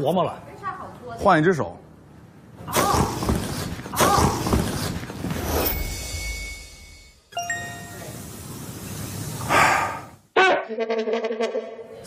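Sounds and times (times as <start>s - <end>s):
bright chime ding: 5.7s - 8.2s
held ringing tone: 5.7s - 8.2s.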